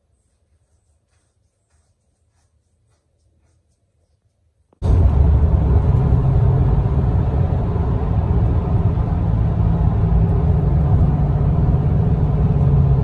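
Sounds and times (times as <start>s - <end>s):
car cabin road and engine noise: 4.8s - 13.0s.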